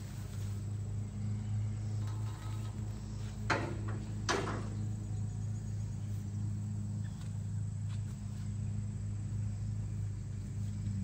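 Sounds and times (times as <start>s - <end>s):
low engine hum: 0.0s - 11.0s
scrap metal clanking: 1.8s - 5.0s.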